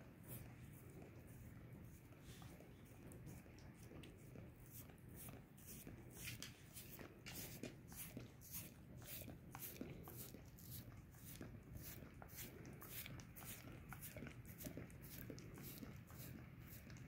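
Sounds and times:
dog licking wet smacks: 0.2 - 17.0.

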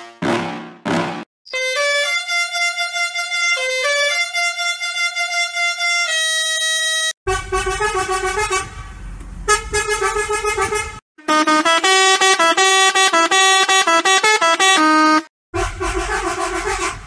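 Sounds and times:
melodic horn-like tune: 1.5 - 8.7, 9.5 - 17.0
bus horn playing a tune: 1.5 - 17.0.

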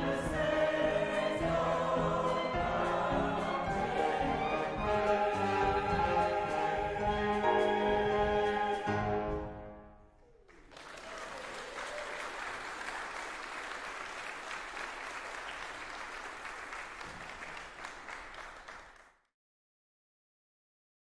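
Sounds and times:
choir with piano clarinet and trombone: 0.0 - 9.9
congregation applauding: 10.2 - 19.2.

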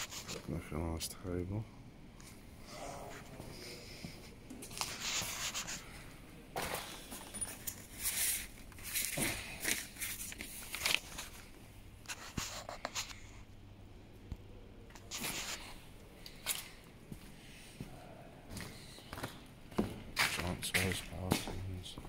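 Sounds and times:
paper sheets rustling: 7.9 - 11.5, 15.0 - 15.7.

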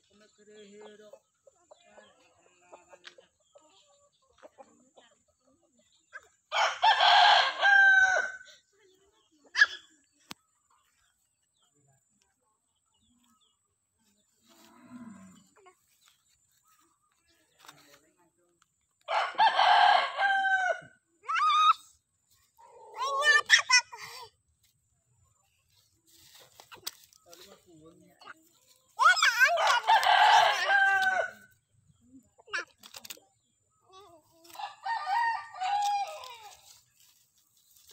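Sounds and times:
rooster crowing: 6.5 - 8.4, 19.1 - 20.9, 29.6 - 31.4, 34.6 - 36.2.

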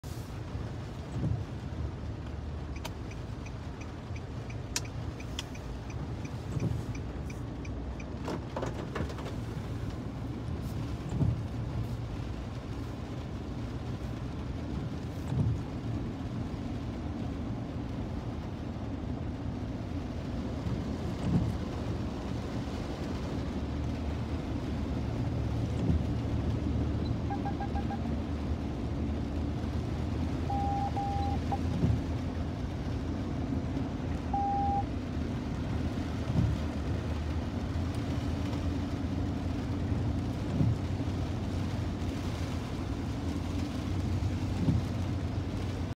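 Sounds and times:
car driving through floodwater: 0.0 - 45.9
short beeps: 30.5 - 31.4, 34.3 - 34.8.

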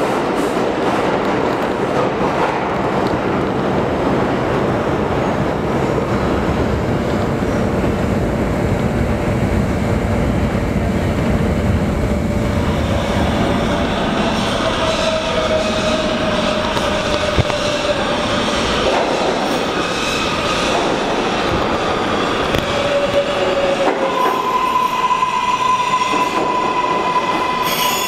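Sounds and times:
subway train wheels rumbling: 0.0 - 28.0
approaching train whine: 7.6 - 28.0.

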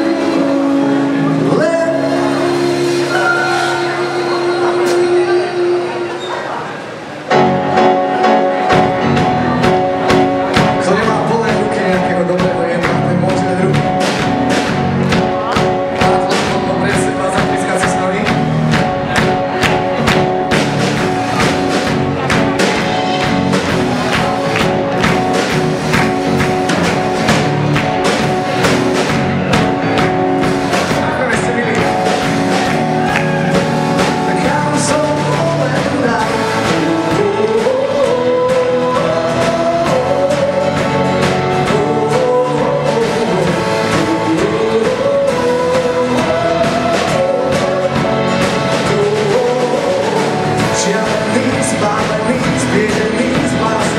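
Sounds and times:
man singing: 0.0 - 6.2, 10.6 - 19.6, 30.9 - 53.9
acoustic guitar: 0.0 - 53.9
drums: 0.0 - 53.9
keyboard: 0.0 - 53.9.

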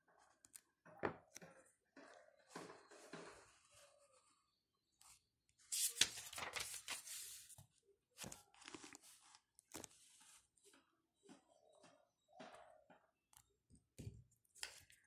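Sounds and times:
book page rustling: 5.7 - 10.5.

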